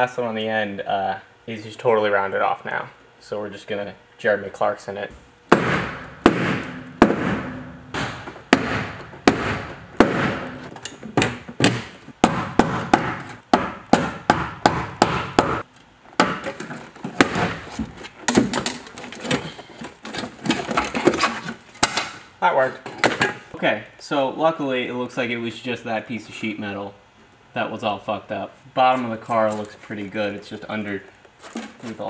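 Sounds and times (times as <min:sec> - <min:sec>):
hammer striking metal: 0:05.5 - 0:10.7.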